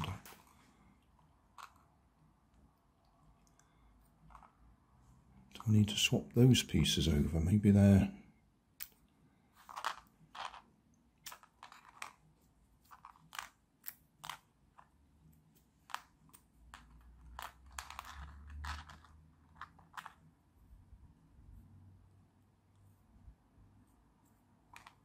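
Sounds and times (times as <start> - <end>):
plastic pieces clicking and tapping: 9.6 - 20.3, 24.6 - 25.0.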